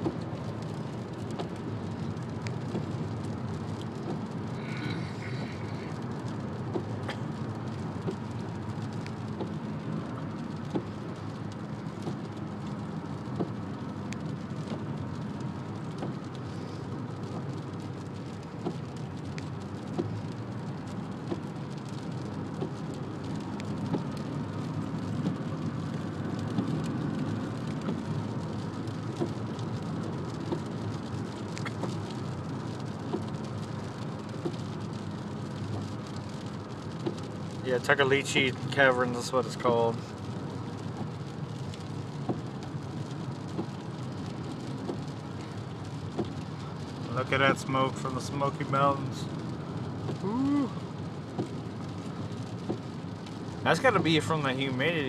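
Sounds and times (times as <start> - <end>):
rain on windshield: 0.0 - 55.0
tyres hissing on wet road: 0.0 - 55.0
faint ticks: 12.0 - 37.6.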